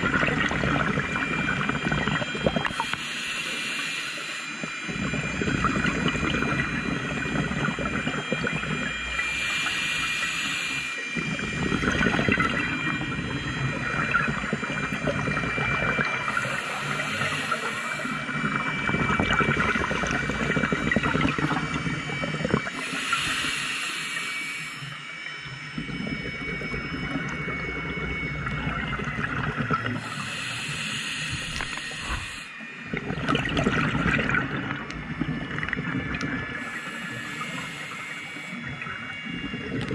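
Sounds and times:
exhaled bubbles rumbling: 0:00.0 - 0:03.0, 0:04.6 - 0:09.7, 0:11.2 - 0:23.2, 0:25.3 - 0:30.2, 0:31.4 - 0:39.9
regulator inhale hiss: 0:02.7 - 0:04.6, 0:09.1 - 0:11.0, 0:16.3 - 0:18.2, 0:22.7 - 0:25.0, 0:30.0 - 0:32.6, 0:36.6 - 0:38.7.

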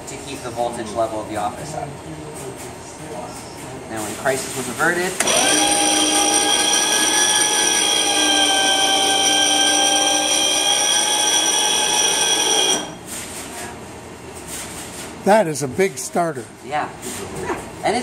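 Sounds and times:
electric motor whining: 0:05.2 - 0:13.0.

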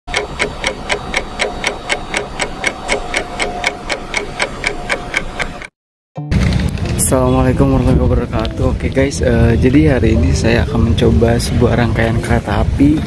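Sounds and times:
clock-like ticking: 0:00.1 - 0:05.7.

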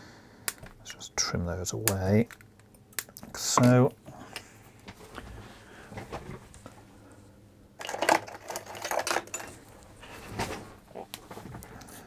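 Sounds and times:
tools clattering and rustling: 0:07.8 - 0:11.6.

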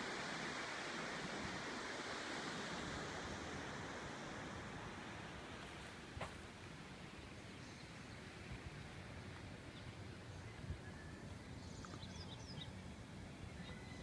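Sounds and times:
soft thumps: 0:06.2 - 0:06.5.

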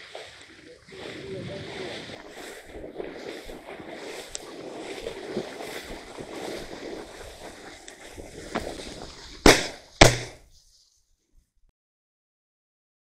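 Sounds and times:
shotgun shots: 0:09.4 - 0:10.4.

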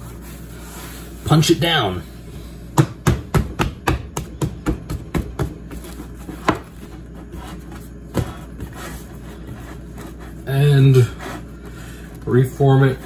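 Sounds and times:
hand punching bread dough: 0:02.7 - 0:09.9.

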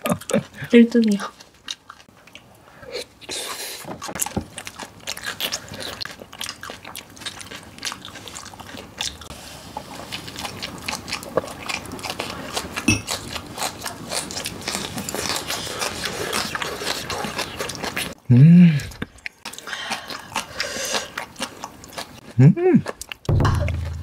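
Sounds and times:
crunching and chewing: 0:00.0 - 0:18.2, 0:18.8 - 0:24.0
heavy thump: 0:23.3 - 0:24.0.

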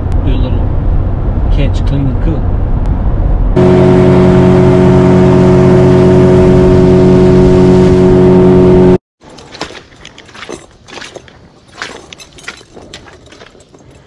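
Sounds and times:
outboard motor droning: 0:03.6 - 0:09.0.

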